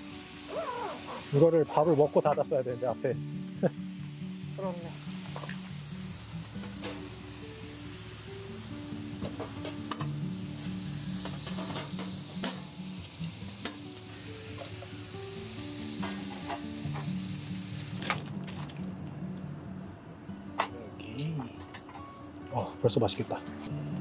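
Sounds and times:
meat sizzling in a hot pan: 0:00.0 - 0:18.2
soft background music: 0:00.0 - 0:24.0.

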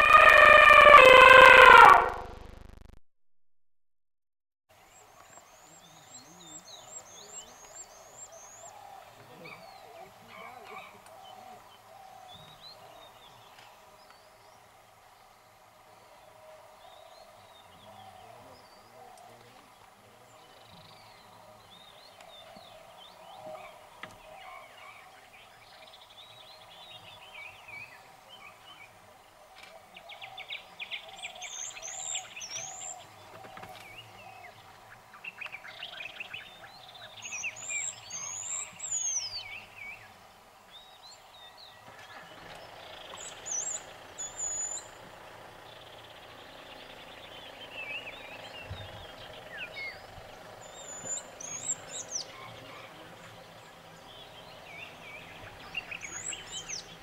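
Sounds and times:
rapid chattering bird calls: 0:41.8 - 0:57.0.

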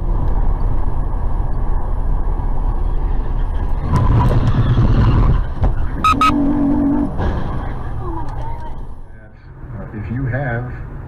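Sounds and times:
road and engine rumble: 0:00.0 - 0:11.0
car horn beeps: 0:06.0 - 0:06.4.

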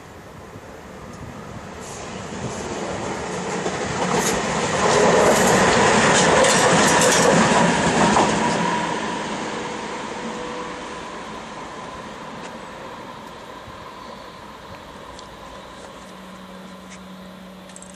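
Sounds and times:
electric locomotive passing: 0:00.0 - 0:17.9
wheels clicking over rail joints: 0:03.5 - 0:08.6, 0:17.6 - 0:17.9.

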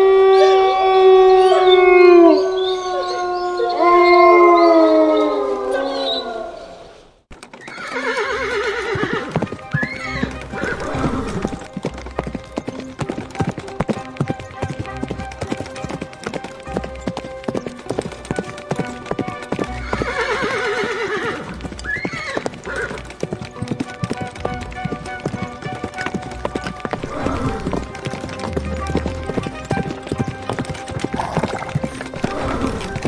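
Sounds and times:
wolf howling: 0:00.0 - 0:06.8
hoofbeats clip-clopping: 0:07.3 - 0:33.0
horse whinnying: 0:07.6 - 0:13.3, 0:14.0 - 0:23.1, 0:23.8 - 0:33.0
background music: 0:07.8 - 0:33.0.

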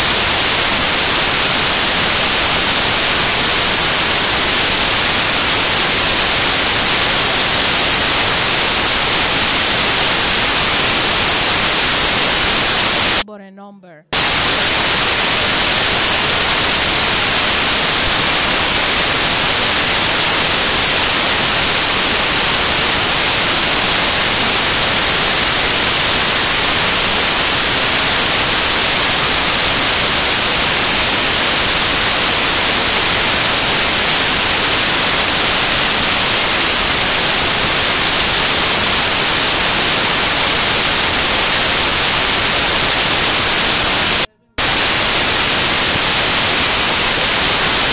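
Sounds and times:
static hiss: 0:00.0 - 0:13.3, 0:14.1 - 0:47.9.

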